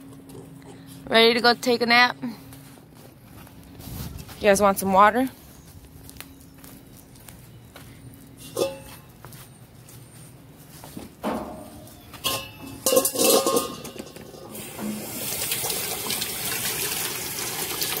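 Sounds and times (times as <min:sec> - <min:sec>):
hose water splashing into metal bowl: 0:14.3 - 0:18.0.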